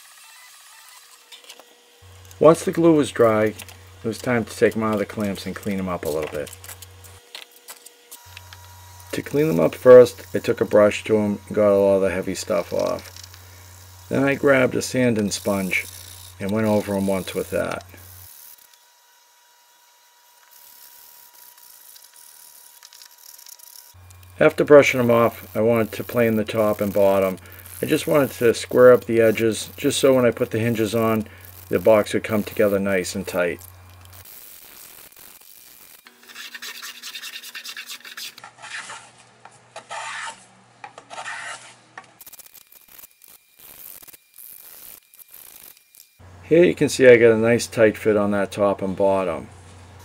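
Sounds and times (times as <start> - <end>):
sanding sponge rasping on wood: 36.3 - 39.1, 39.8 - 40.4, 41.1 - 41.7
hand plane shaving wood: 36.3 - 39.2, 39.8 - 41.8.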